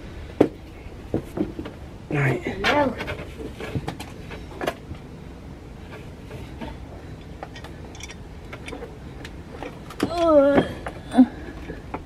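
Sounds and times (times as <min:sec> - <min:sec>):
low steady hum: 0:00.0 - 0:12.0
clicks and knocks on metal parts: 0:07.3 - 0:11.0.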